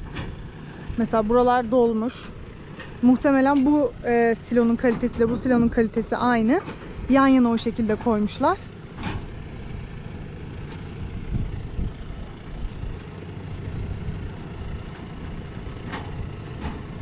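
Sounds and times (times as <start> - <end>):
tractor engine rumbling: 0.0 - 17.0.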